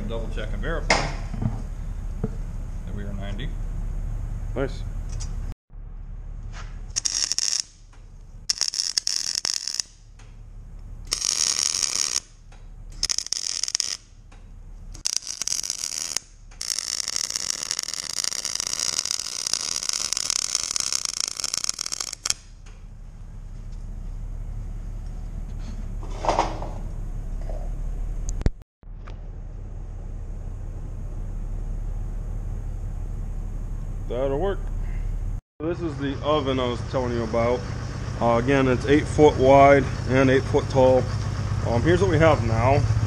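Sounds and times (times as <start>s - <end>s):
diesel engine hum: 0.0s - 7.0s, 9.9s - 11.2s, 12.2s - 13.2s, 14.0s - 15.2s, 22.4s - 43.0s
welding arc crackling: 6.9s - 10.2s, 11.0s - 14.2s, 14.9s - 22.6s.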